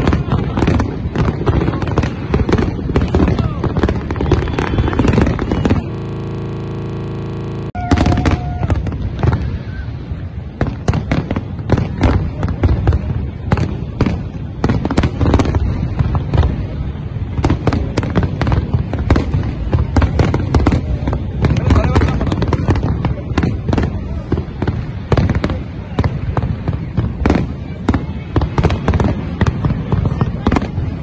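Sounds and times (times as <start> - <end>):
fireworks bangs and crackling: 0.0 - 31.0
steady buzz: 5.0 - 8.1.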